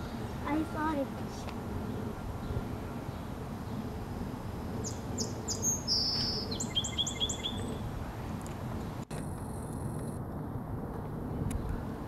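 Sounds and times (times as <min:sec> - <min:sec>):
sparrow singing: 0:04.8 - 0:07.8.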